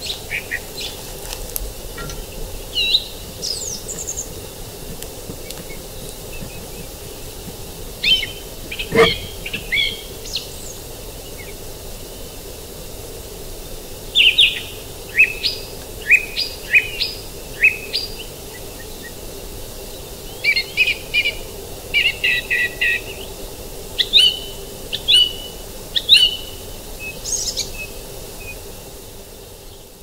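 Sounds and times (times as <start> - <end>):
creek rushing: 1.8 - 10.1
songbird short sharp calls: 8.0 - 10.0.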